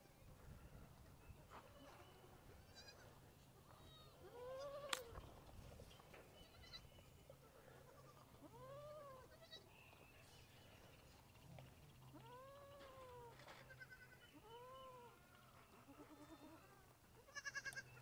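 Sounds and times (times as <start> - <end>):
baby goats bleating: 1.8 - 5.2, 6.4 - 6.9, 7.5 - 9.7, 12.1 - 18.0.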